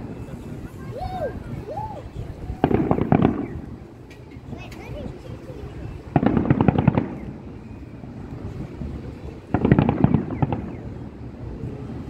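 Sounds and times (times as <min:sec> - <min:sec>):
fireworks bursting in rapid bangs: 0:02.6 - 0:03.8, 0:06.0 - 0:08.5, 0:09.4 - 0:11.2.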